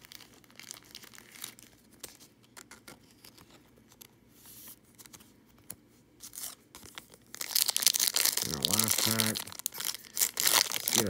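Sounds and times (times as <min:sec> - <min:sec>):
foil wrapper crinkling: 0:00.0 - 0:03.4, 0:06.3 - 0:11.0.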